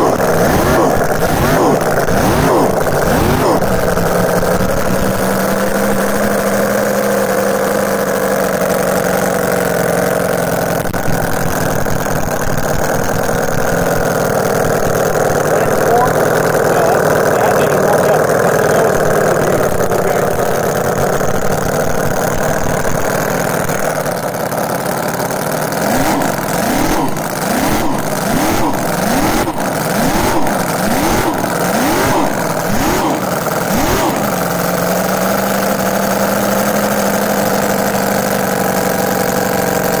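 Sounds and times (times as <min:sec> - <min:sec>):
engine idling and revving: 0:00.0 - 0:40.0.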